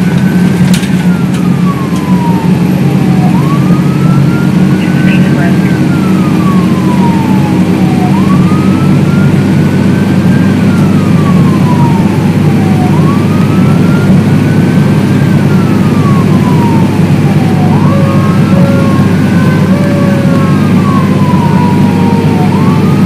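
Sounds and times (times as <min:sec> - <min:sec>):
siren wailing: 0:00.0 - 0:23.0
truck engine and road rumble: 0:00.0 - 0:23.0.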